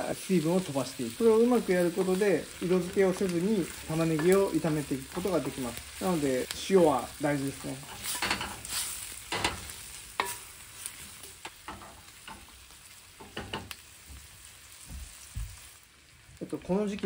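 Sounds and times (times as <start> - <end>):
onions sizzling in oil: 0.0 - 17.0
wooden spatula scraping pan: 7.8 - 10.4.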